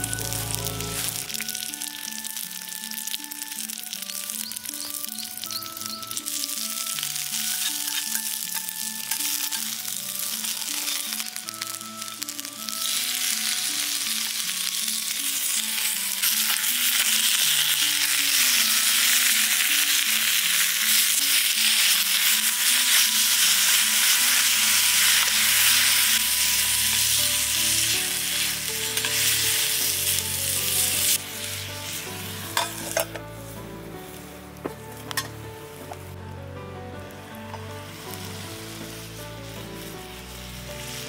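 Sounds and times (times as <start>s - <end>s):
meat sizzling in a grill pan: 0.0s - 36.1s, 37.0s - 41.0s
tongs turning food: 28.1s - 29.9s.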